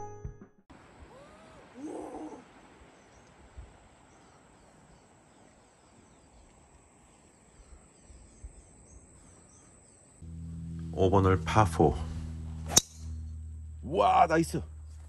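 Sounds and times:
soft hiss: 0.8 - 9.6
birds chirping: 1.2 - 11.4
low bumps: 10.2 - 15.0.

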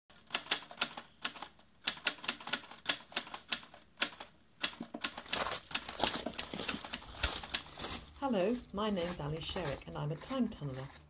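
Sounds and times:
typewriter keys clacking: 0.1 - 7.7
rustling noise: 4.7 - 11.0.

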